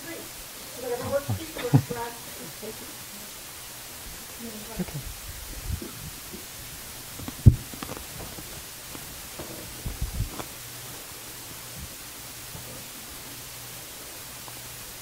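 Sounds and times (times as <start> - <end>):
faint low hum: 0.0 - 15.0
steady hiss: 0.0 - 15.0
muffled thump: 7.2 - 8.3.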